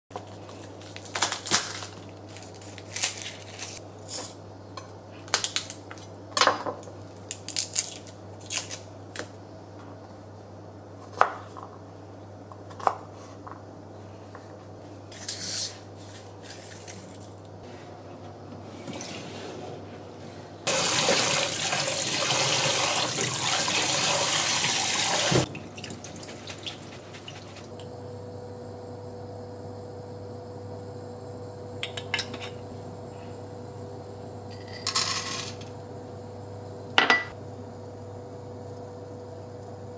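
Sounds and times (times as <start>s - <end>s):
garlic skins crackling: 0.3s - 3.8s, 7.2s - 8.9s.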